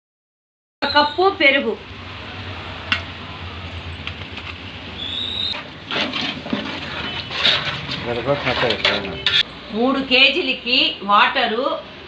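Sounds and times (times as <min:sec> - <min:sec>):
ladle stirring and scraping pot: 0:05.5 - 0:09.5.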